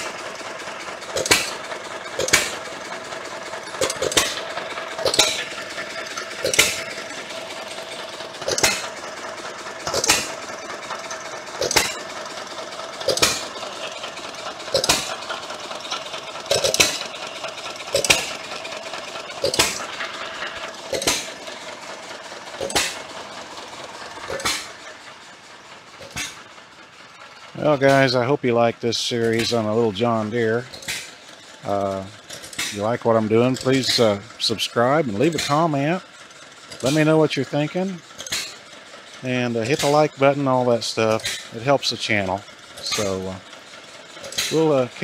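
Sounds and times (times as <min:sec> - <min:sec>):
hit-and-miss engine firing: 0:00.0 - 0:26.7, 0:27.5 - 0:36.0, 0:36.6 - 0:45.0.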